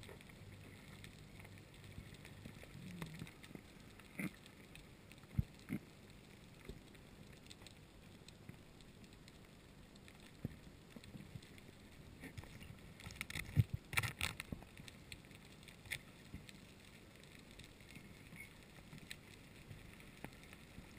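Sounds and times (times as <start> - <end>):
dense crackling: 0.0 - 20.9
underwater knocks and clicks: 12.2 - 14.9.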